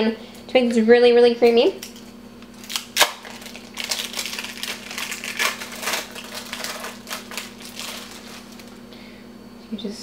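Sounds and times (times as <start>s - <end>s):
plastic wrappers crinkling: 2.5s - 8.8s.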